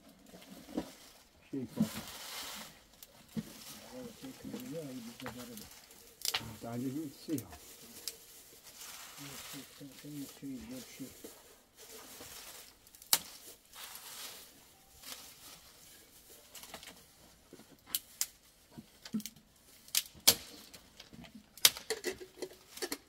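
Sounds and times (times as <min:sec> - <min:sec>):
twigs snapping: 0:03.0 - 0:06.7, 0:07.4 - 0:10.2, 0:12.2 - 0:14.4, 0:17.8 - 0:18.4, 0:19.0 - 0:23.0.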